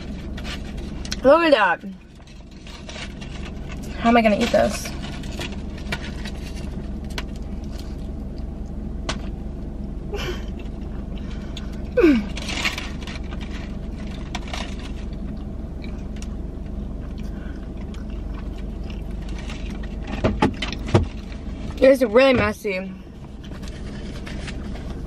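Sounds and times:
foil wrapper rustling: 0.0 - 1.3, 2.0 - 8.2, 10.6 - 15.4, 18.1 - 21.9, 23.2 - 25.0
car interior hum: 0.0 - 25.0
chewing: 10.6 - 20.8.

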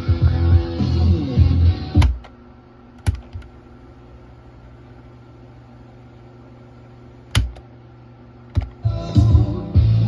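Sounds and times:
low hum and hiss: 0.0 - 10.0
cassette player button clicks: 2.0 - 2.4, 7.3 - 7.6.

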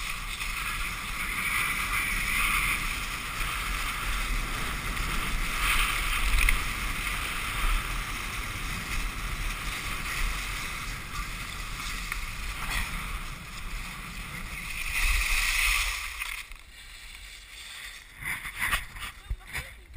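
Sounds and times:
skis hissing over wet snow: 0.0 - 19.0.

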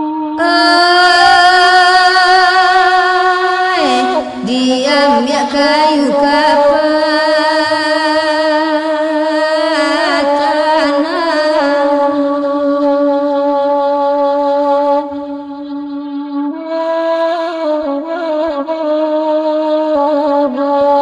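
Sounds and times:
bamboo flute melody: 13.6 - 21.0.

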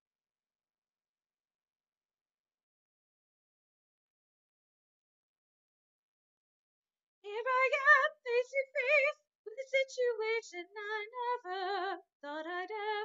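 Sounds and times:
woman singing soprano: 7.3 - 13.0.

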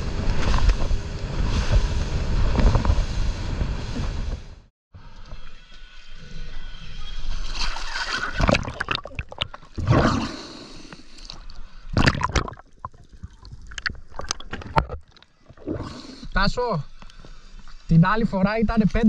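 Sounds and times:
underwater gurgling and bubbling: 8.3 - 10.5, 11.9 - 16.2.

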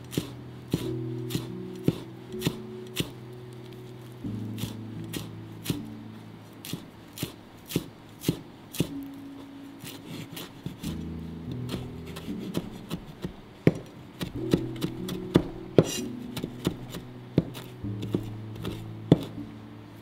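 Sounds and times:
knife chopping on cutting board: 0.1 - 3.1, 6.6 - 8.9, 11.7 - 19.4.

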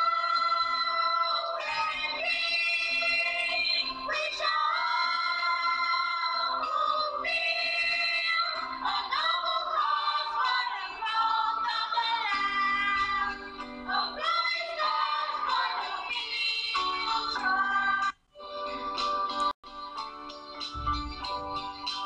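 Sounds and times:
song with sung vocal: 0.0 - 19.4.

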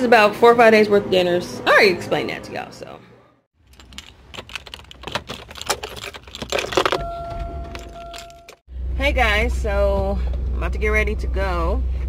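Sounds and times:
car keys jangling: 3.6 - 8.6
electronic warning chime: 7.0 - 8.6.

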